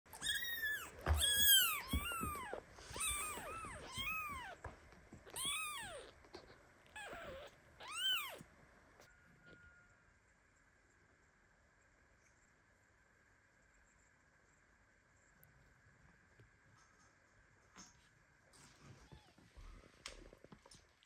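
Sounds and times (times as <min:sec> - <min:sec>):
newborn kitten meowing: 0:00.1 - 0:04.6, 0:05.3 - 0:06.2, 0:06.9 - 0:08.4.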